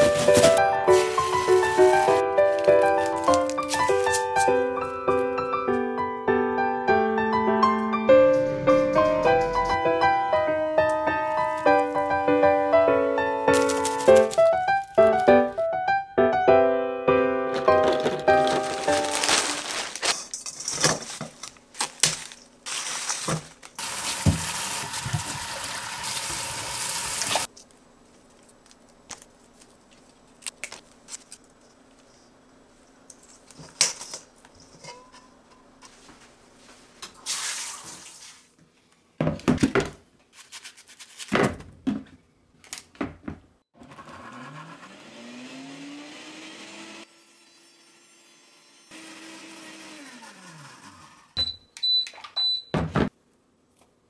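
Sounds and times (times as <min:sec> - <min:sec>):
plastic bag crinkling: 0:00.0 - 0:04.6, 0:13.5 - 0:15.4, 0:17.5 - 0:24.1
tap running: 0:23.8 - 0:27.5
colander and bowls clattering: 0:33.6 - 0:35.6
blender motor whining: 0:43.8 - 0:51.4.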